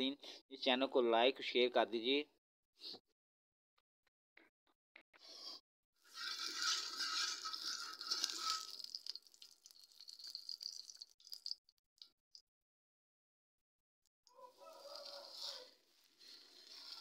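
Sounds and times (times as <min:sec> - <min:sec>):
metal spatula spreading: 0:06.0 - 0:09.2, 0:14.6 - 0:17.0
ghee sizzling and crackling: 0:06.1 - 0:11.6, 0:14.6 - 0:17.0.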